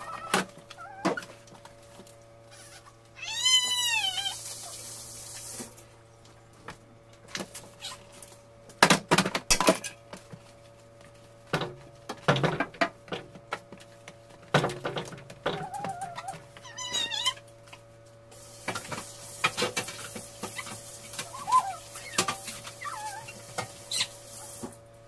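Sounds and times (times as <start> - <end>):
cat meowing: 2.6 - 4.4.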